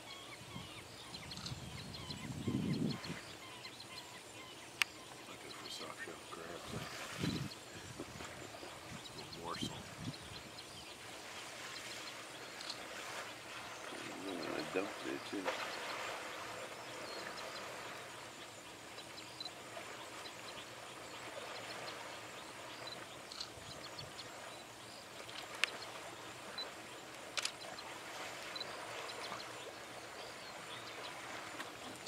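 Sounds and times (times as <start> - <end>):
outdoor ambience: 2.7 - 32.0
sharp clicks: 27.3 - 27.6.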